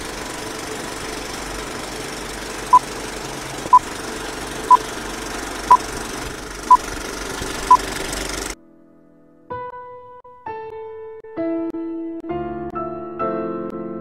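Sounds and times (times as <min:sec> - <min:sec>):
film projector whirr and clatter: 0:00.0 - 0:08.6.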